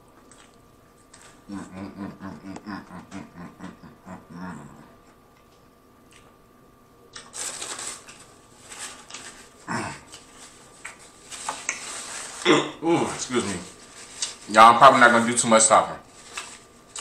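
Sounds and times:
man chewing food: 0:00.0 - 0:07.4, 0:08.0 - 0:12.0.

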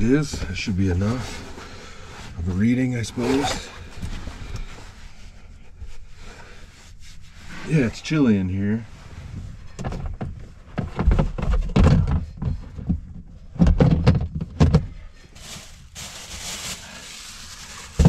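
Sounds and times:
rustling: 0:14.9 - 0:18.0.

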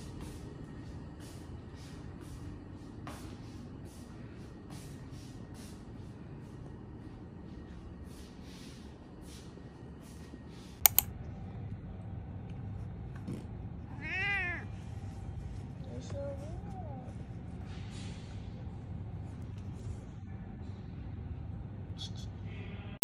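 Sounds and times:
sharp clicks: 0:10.8 - 0:11.1
cat meowing: 0:13.9 - 0:14.7.

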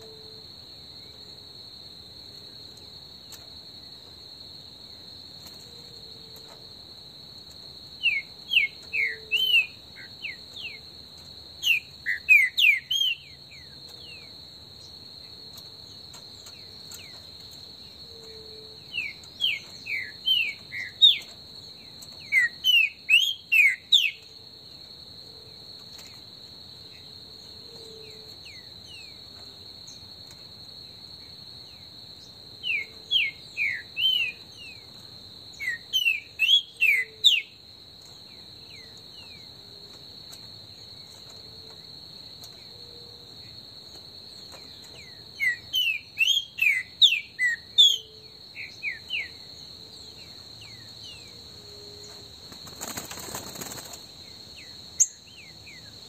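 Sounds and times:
high insect drone: 0:00.0 - 0:56.0
bird singing whistled notes: 0:08.0 - 0:10.8, 0:11.6 - 0:14.2, 0:18.5 - 0:21.3, 0:22.2 - 0:24.2, 0:32.6 - 0:34.8, 0:35.5 - 0:37.6, 0:45.0 - 0:49.4.

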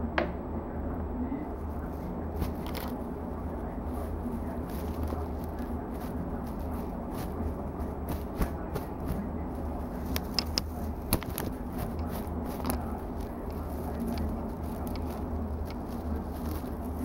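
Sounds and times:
low room hum: 0:00.0 - 0:17.0
small clicks and taps: 0:09.9 - 0:16.7.

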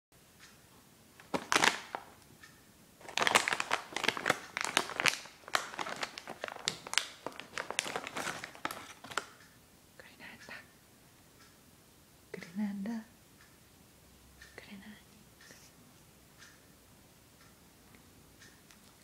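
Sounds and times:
wrapper crinkling: 0:01.2 - 0:02.2, 0:03.0 - 0:09.4.

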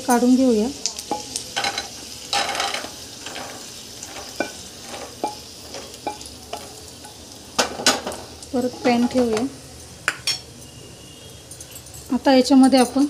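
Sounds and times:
faint oil sizzling: 0:00.0 - 0:13.0.

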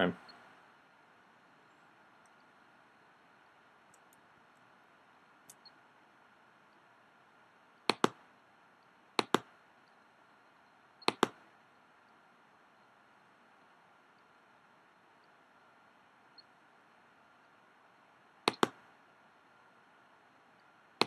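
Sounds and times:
low steady hiss: 0:00.0 - 0:21.0
computer mouse double clicks: 0:11.1 - 0:11.4.

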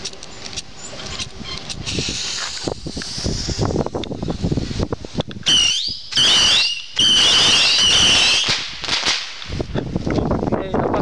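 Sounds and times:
whistling firework rockets: 0:05.4 - 0:09.6.

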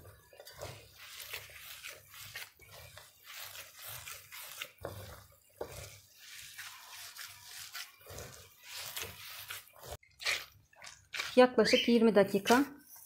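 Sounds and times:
dough squelching against metal: 0:00.0 - 0:13.0.

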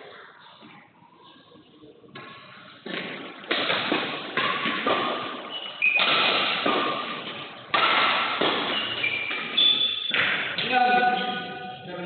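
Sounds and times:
rackets hitting shuttlecock: 0:02.1 - 0:11.4
shoe squeak: 0:05.4 - 0:06.1, 0:08.6 - 0:10.2, 0:11.0 - 0:11.8.

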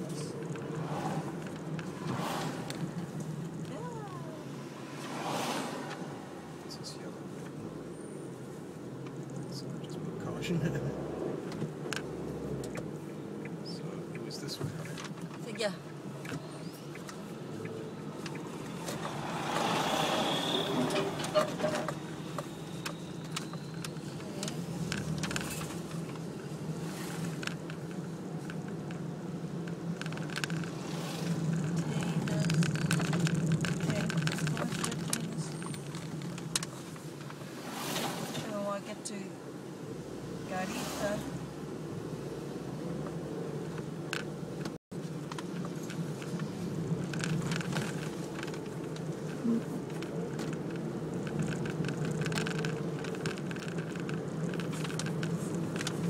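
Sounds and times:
car engine and road noise hum: 0:00.0 - 0:56.0
sharp clicks and rattles: 0:20.4 - 0:37.4, 0:43.8 - 0:56.0
faint ticks and rattles: 0:45.1 - 0:56.0.

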